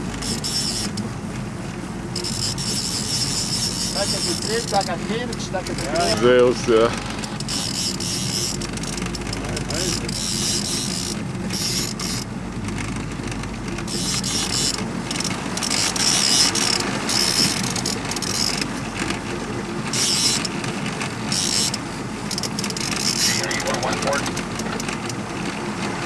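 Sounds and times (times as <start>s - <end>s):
boat engine humming: 0.0s - 26.0s
fishing reel ratcheting: 0.2s - 1.0s, 2.2s - 6.1s, 7.2s - 12.3s, 13.9s - 18.7s, 19.9s - 20.6s, 21.3s - 25.2s.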